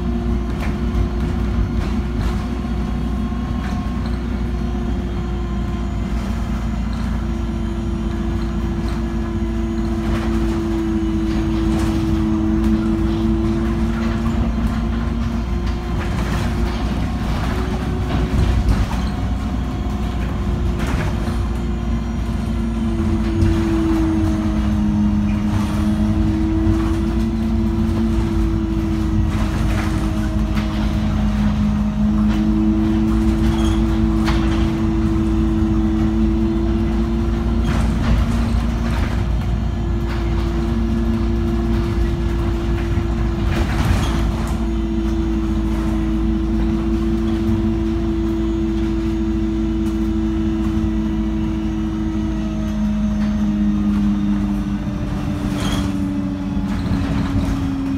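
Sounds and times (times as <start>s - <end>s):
bus engine drone: 0.0s - 57.9s
rattles and knocks: 8.7s - 51.2s.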